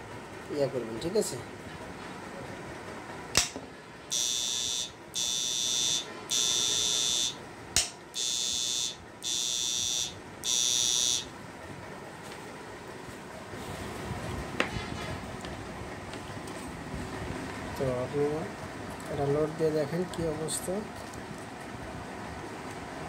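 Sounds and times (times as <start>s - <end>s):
sharp click: 3.4s - 3.6s, 7.8s - 8.0s
high-pitched buzzer beeps: 4.1s - 7.4s, 8.1s - 11.3s.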